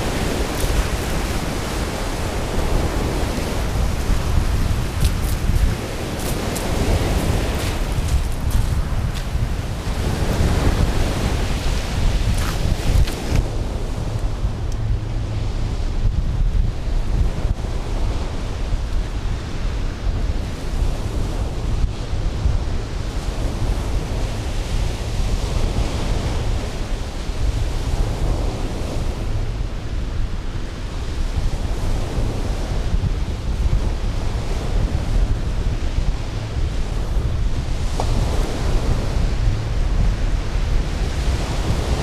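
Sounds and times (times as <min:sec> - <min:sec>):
surf breaking on beach: 0:00.0 - 0:14.5
wind buffeting microphone: 0:00.0 - 0:42.0.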